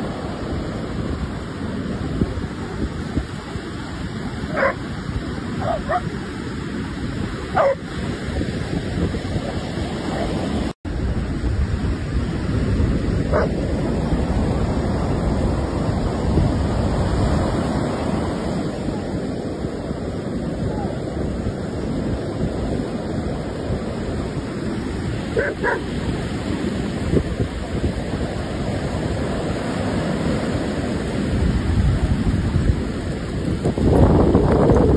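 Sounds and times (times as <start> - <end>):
ocean surf breaking: 0.0 - 34.9
wind noise on microphone: 0.0 - 34.9
dog barking: 4.5 - 4.8, 5.6 - 6.1, 7.5 - 7.8, 13.3 - 13.6, 25.4 - 25.9.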